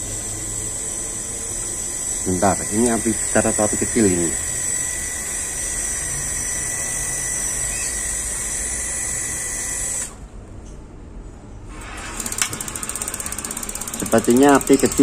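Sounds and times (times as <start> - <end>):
water heater burner rushing: 11.7 - 15.0.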